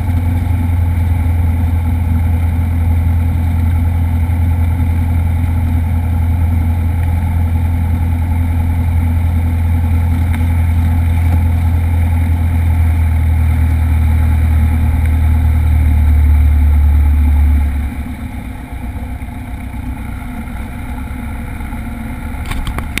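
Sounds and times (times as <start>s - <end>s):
light airplane engine droning: 0.0s - 23.0s.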